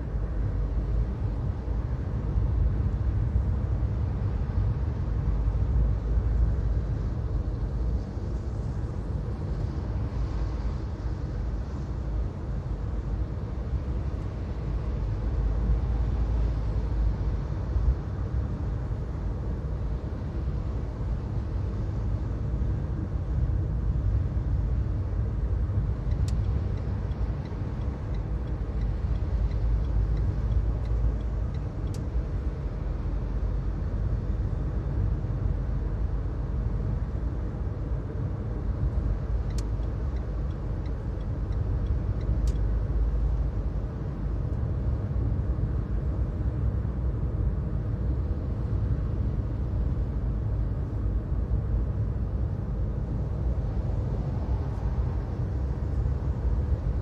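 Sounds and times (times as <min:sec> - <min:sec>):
car interior road rumble: 0:00.0 - 0:57.0
faint clicks: 0:39.5 - 0:42.7.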